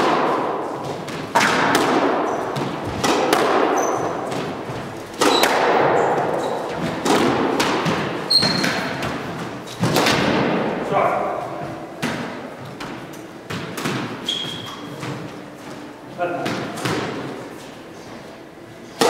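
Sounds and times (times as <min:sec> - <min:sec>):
squash ball cracking off walls: 0:00.0 - 0:10.8, 0:12.0 - 0:14.5
shoe squeaks: 0:02.3 - 0:02.5, 0:03.7 - 0:04.3, 0:06.3 - 0:06.8, 0:08.3 - 0:09.0, 0:14.2 - 0:15.0.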